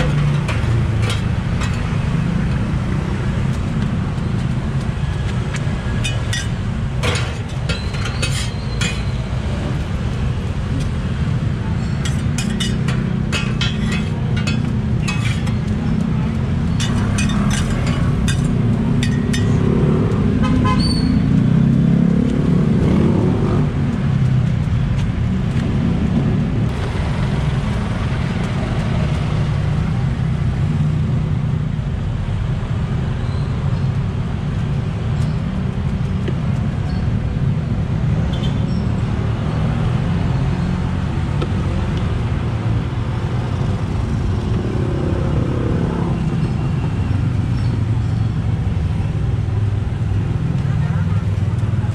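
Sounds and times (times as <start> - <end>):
street traffic rumble: 0.0 - 51.9.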